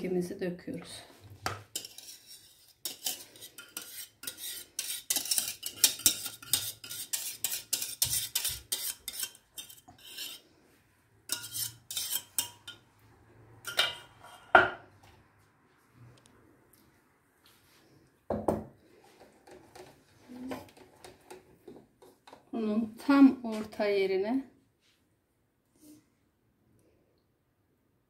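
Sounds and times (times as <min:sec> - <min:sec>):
whisk scraping a metal pot: 0:01.6 - 0:10.5, 0:11.2 - 0:12.8.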